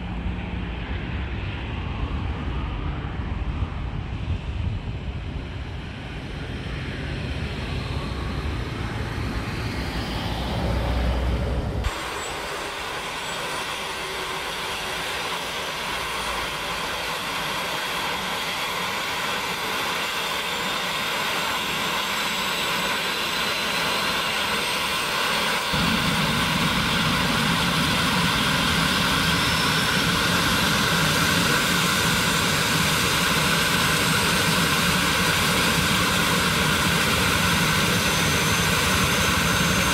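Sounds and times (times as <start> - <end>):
wind rumble on microphone: 0.0 - 11.9
turbine engines whine rising: 0.0 - 39.9
helicopter rotor: 5.5 - 39.9.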